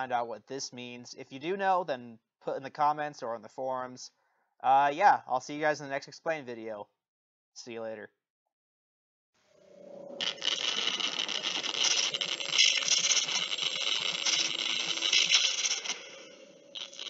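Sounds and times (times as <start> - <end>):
faint steady hum: 9.5 - 17.0
harsh crackling static: 9.6 - 17.0.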